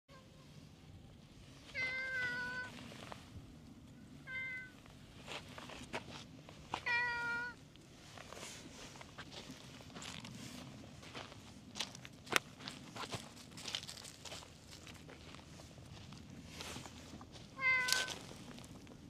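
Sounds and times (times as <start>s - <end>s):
cat meowing: 1.8s - 2.7s, 4.2s - 4.8s, 6.8s - 7.6s, 17.6s - 18.2s.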